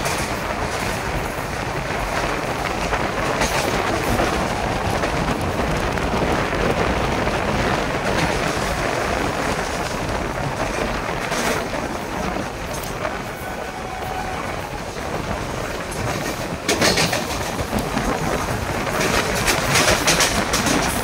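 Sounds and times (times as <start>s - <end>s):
train wheels rumbling on rail: 0.0s - 21.0s.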